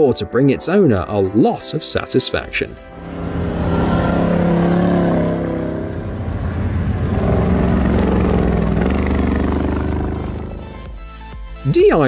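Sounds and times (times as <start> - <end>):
engine running hard under load: 2.9 - 10.8.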